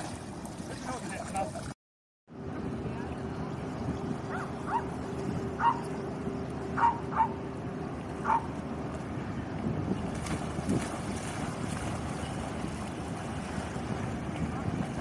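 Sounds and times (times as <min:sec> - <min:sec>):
barge engine drone: 0:02.3 - 0:15.0
dog yipping: 0:05.6 - 0:05.9, 0:06.8 - 0:07.3.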